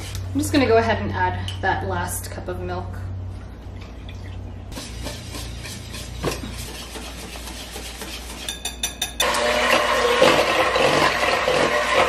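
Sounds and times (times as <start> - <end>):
whisk beating in a bowl: 4.7 - 12.0.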